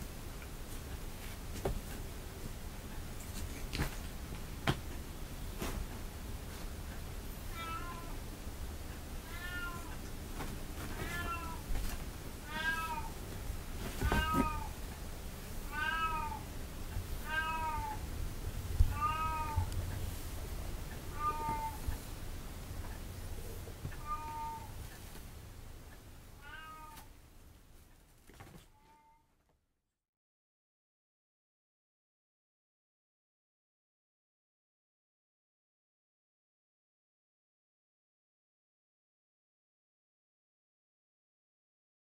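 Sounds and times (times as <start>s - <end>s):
kitten meowing: 15.7s - 16.4s, 17.3s - 18.0s, 18.9s - 19.7s, 21.1s - 21.8s, 24.0s - 24.7s, 26.4s - 27.1s.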